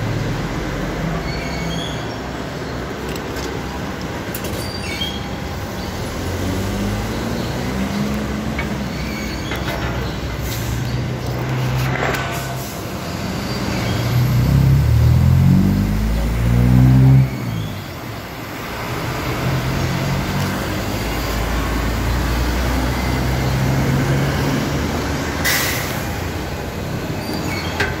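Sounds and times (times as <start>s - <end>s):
truck engines running low: 0.0s - 28.0s
truck engine pulling away: 5.5s - 28.0s
air hiss: 25.4s - 26.2s.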